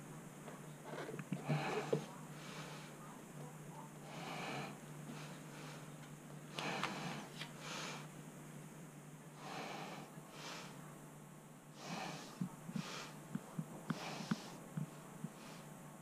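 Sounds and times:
low steady hum: 0.0 - 16.0
person breathing noisily: 4.0 - 8.1, 9.4 - 10.8, 11.8 - 13.2, 13.9 - 14.6.

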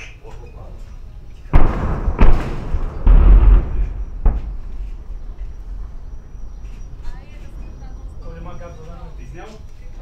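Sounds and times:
large explosive detonations: 1.5 - 8.6.

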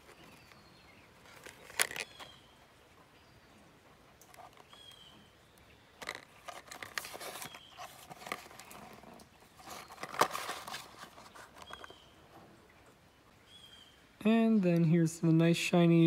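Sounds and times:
cardboard box rustling and tapping: 6.0 - 12.0.

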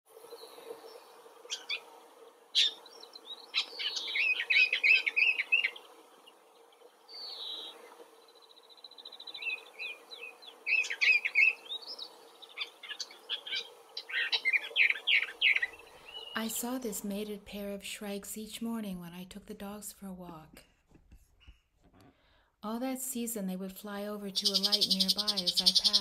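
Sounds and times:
birds chattering: 0.4 - 2.0, 2.6 - 16.6, 24.4 - 26.0.

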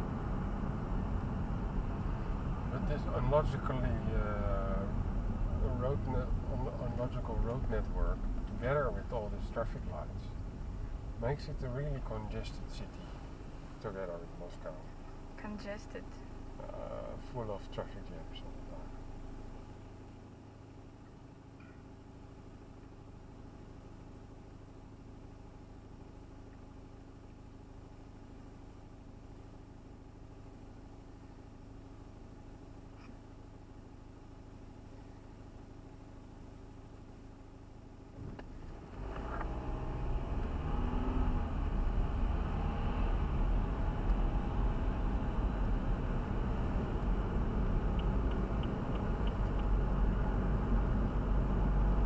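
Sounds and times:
car engine hum: 0.0 - 52.0
road rumble: 0.0 - 52.0.

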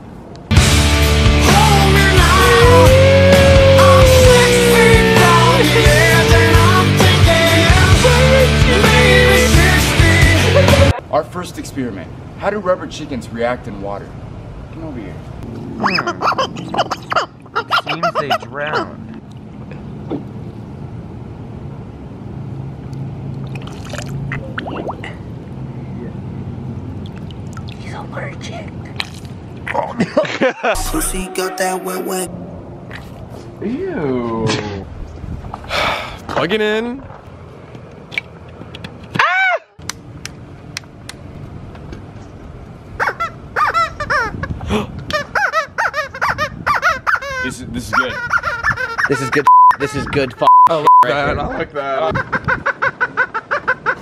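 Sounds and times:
rubber chicken squeaking: 15.8 - 19.0, 43.0 - 50.4
water gurgling and trickling: 23.3 - 25.4, 27.0 - 28.1.

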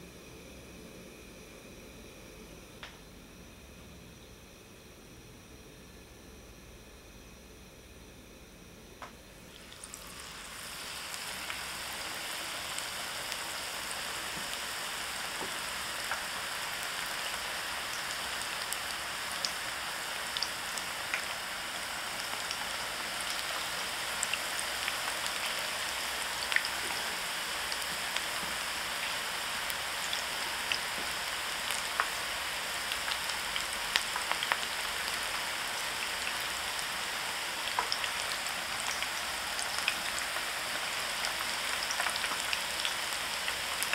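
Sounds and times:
batter deep-frying in oil: 8.8 - 43.9
oil popping and crackling: 27.8 - 32.2, 32.8 - 36.6, 37.6 - 43.9.

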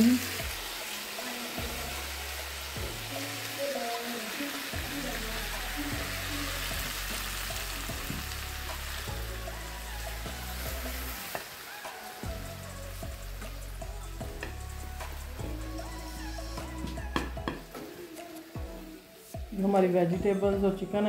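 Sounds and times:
background music: 0.0 - 21.0
food sizzling in a frying pan: 0.0 - 21.0.

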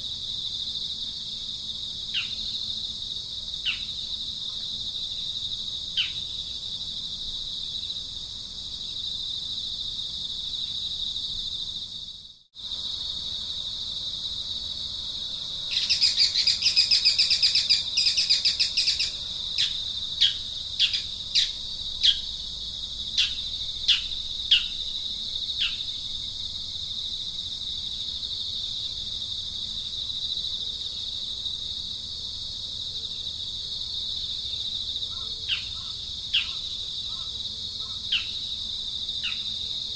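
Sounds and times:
high-pitched insect drone: 0.0 - 32.2
bird calling: 15.7 - 22.3, 35.1 - 38.4.

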